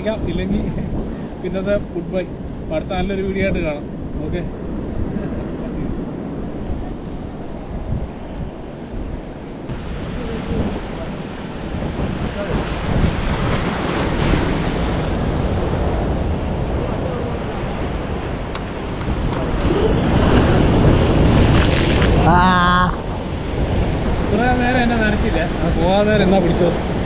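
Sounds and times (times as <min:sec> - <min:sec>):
wind buffeting microphone: 0:00.0 - 0:27.0
surf breaking on rocks: 0:09.7 - 0:27.0.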